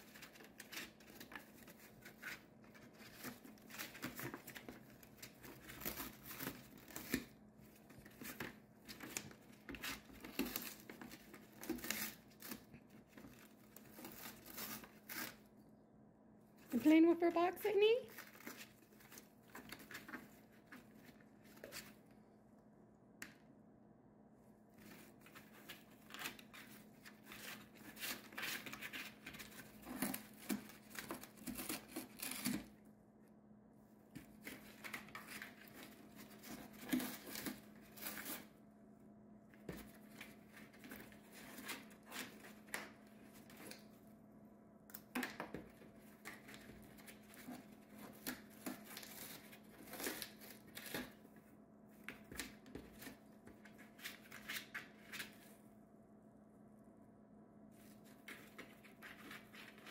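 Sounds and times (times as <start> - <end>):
bird tearing cardboard: 0.0 - 15.4, 18.1 - 22.0, 24.8 - 32.8, 34.2 - 38.5, 39.6 - 43.9, 45.1 - 51.2, 52.1 - 55.4
faint steady hum: 0.0 - 59.9.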